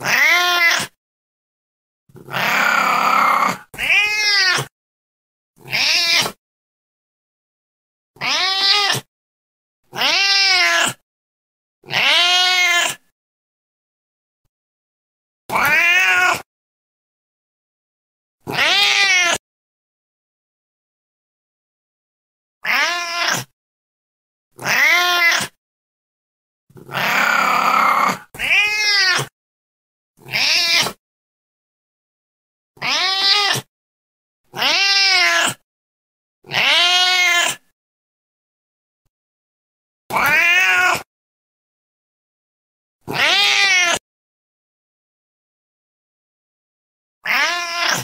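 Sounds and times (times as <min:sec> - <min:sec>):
cat meowing: 0:00.0 - 0:01.0, 0:02.2 - 0:04.7, 0:05.6 - 0:06.4, 0:08.2 - 0:09.1, 0:09.9 - 0:11.0, 0:11.9 - 0:13.0, 0:15.5 - 0:16.5, 0:18.5 - 0:19.4, 0:22.6 - 0:23.5, 0:24.6 - 0:25.6, 0:26.8 - 0:29.3, 0:30.2 - 0:31.0, 0:32.8 - 0:33.7, 0:34.5 - 0:35.6, 0:36.5 - 0:37.6, 0:40.1 - 0:41.1, 0:43.1 - 0:44.0, 0:47.2 - 0:48.0.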